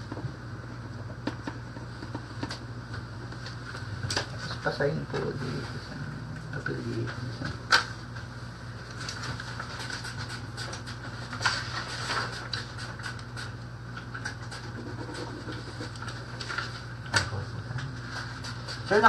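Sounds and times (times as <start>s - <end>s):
ventilation hum: 0.0s - 19.0s.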